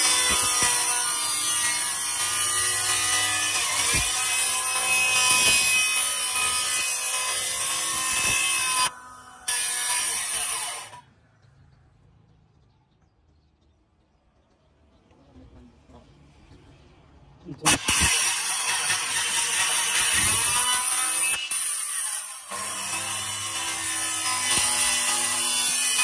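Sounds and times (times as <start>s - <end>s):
power tool cutting: 0.0s - 11.0s, 17.6s - 26.0s.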